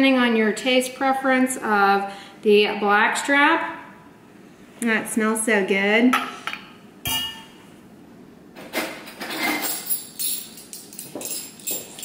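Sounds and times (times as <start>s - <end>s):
glass bottle clinking on counter: 7.1s - 7.6s
light knocks and clinks: 9.3s - 12.0s.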